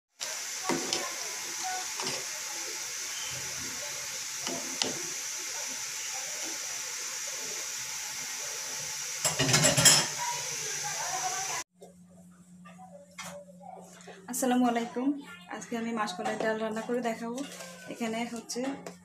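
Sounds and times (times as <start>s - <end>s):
metal spoon stirring in pot: 16.3s - 18.1s.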